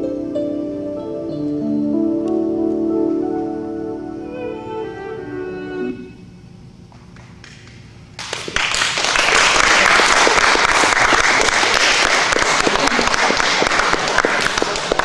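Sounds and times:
audience applause: 7.2 - 15.0.

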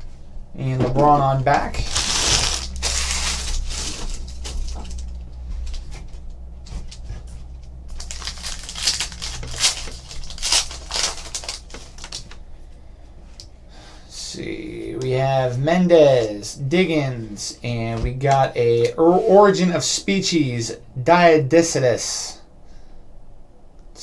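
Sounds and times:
cards and wrappers rustling: 1.8 - 4.9, 7.9 - 12.4
foil wrapper crinkling and tearing: 1.8 - 4.9, 7.9 - 12.4.

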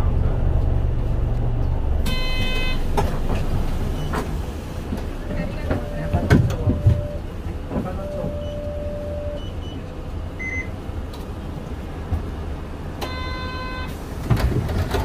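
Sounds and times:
bus engine low rumble: 0.0 - 15.0
electronic buzzer tone: 2.0 - 2.8.

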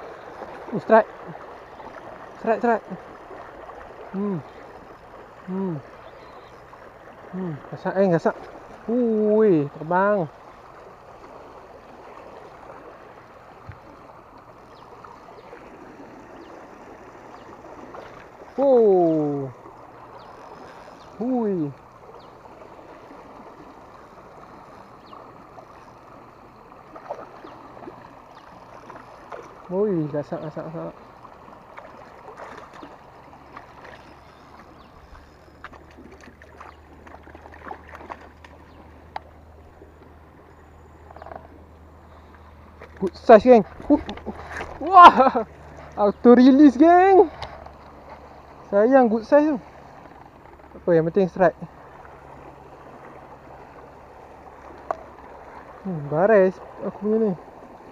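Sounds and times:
water rushing through sluice gate: 0.0 - 5.9, 42.9 - 49.8
low steady hum: 0.0 - 57.9
man exclaiming: 5.5 - 5.9, 44.8 - 45.5.

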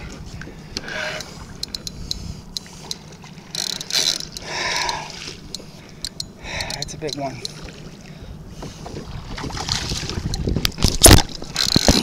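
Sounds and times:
fishing reel clicking: 0.8 - 7.6, 11.6 - 12.0
water splashing: 4.4 - 5.5, 8.8 - 12.0.

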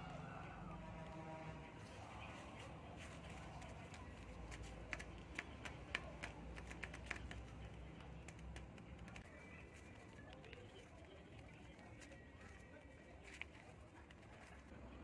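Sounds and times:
paper claws clicking and tapping: 3.0 - 14.9.

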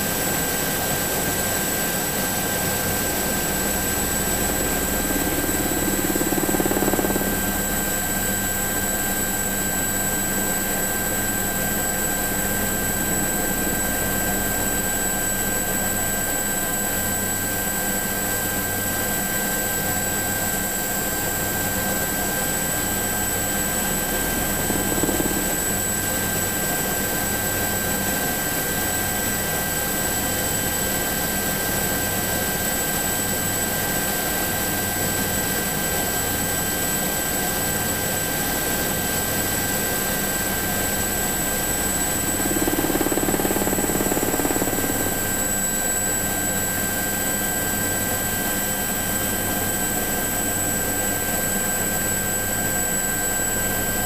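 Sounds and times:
helicopter engine whine: 0.0 - 54.0
helicopter rotor noise: 0.0 - 54.0.

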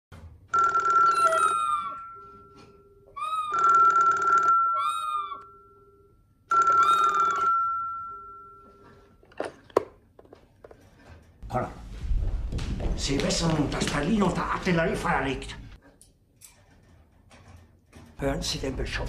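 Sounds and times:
telephone ringing: 0.5 - 9.4
parrot calling: 1.1 - 2.3, 3.1 - 3.8, 4.6 - 5.6.

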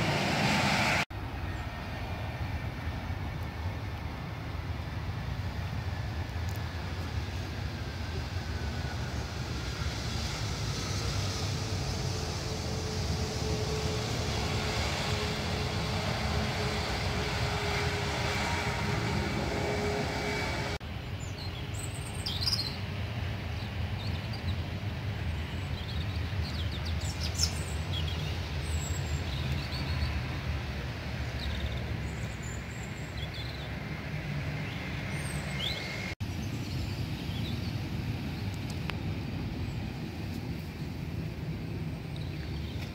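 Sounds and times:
jet engines rumbling: 0.0 - 42.9
birds chirping: 23.5 - 38.8.

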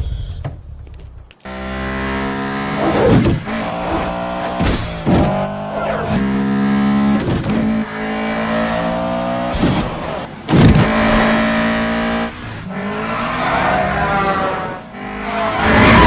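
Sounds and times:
car engines revving at speed: 1.4 - 16.0
whooshes: 5.6 - 6.2.

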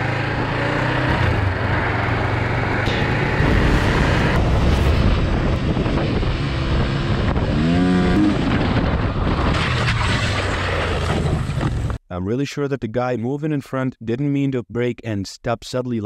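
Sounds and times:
motorcycle engine running: 0.0 - 8.9
wind rushing over microphone: 3.0 - 10.0.

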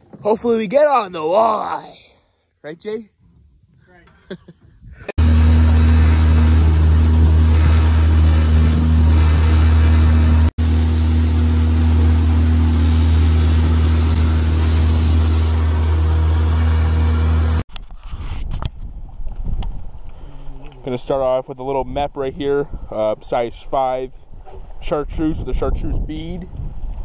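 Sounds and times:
rushing wind: 4.6 - 20.6, 21.9 - 27.0
outboard motor running: 5.2 - 17.6
rushing water: 10.6 - 17.6.

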